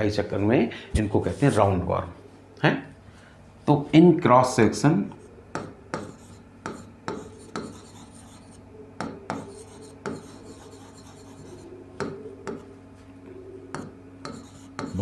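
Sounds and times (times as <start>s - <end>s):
faint steady hum: 0.0s - 15.0s
marker pen scratching on whiteboard: 5.6s - 8.6s, 9.3s - 12.7s, 13.7s - 15.0s.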